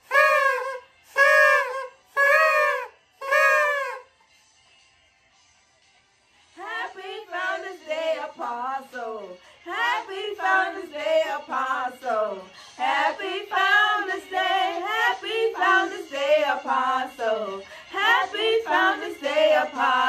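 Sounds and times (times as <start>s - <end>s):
women singing unaccompanied: 6.6s - 20.0s.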